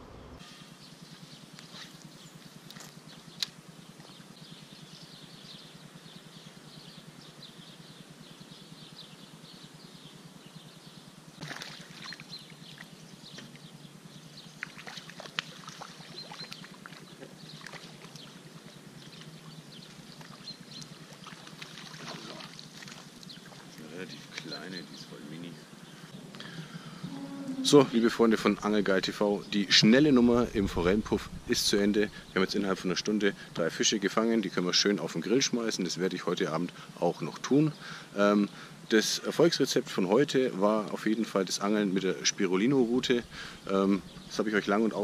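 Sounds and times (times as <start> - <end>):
steady outdoor hiss: 0.0 - 45.0
fish splashing in water: 11.4 - 13.0, 14.6 - 18.4, 20.0 - 23.8.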